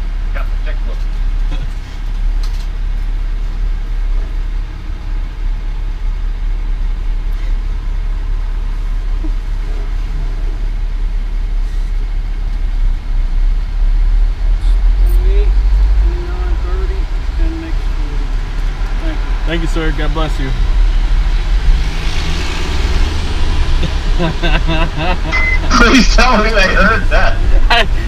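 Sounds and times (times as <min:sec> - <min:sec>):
diesel engine idling: 0:23.0 - 0:28.0.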